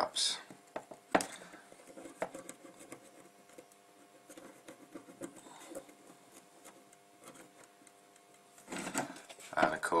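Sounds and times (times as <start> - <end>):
faint steady hum: 0.0 - 10.0
cotton swab scrubbing circuit board: 1.7 - 8.7.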